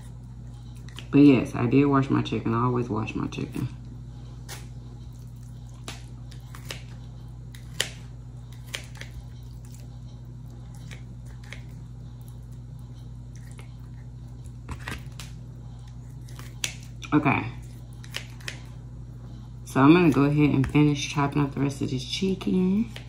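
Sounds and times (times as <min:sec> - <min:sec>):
low steady hum: 0:00.0 - 0:23.0
scissors snipping chicken: 0:05.8 - 0:09.8.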